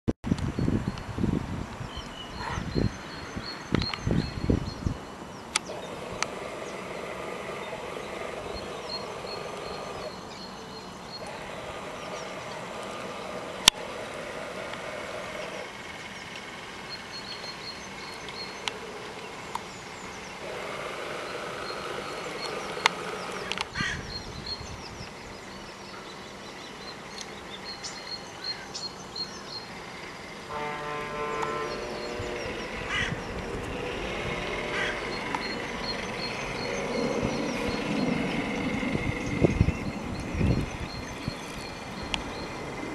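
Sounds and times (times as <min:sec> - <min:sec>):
wind buffeting microphone: 0:00.2 - 0:25.7, 0:30.5 - 0:42.9
birds chirping: 0:00.3 - 0:42.9
pitched quacking calls: 0:30.5 - 0:37.0.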